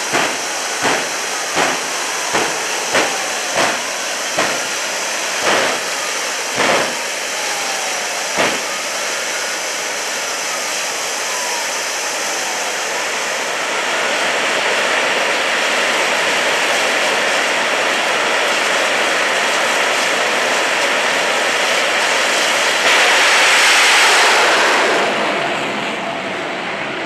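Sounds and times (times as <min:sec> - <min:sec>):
jet engines roaring: 0:00.0 - 0:27.0.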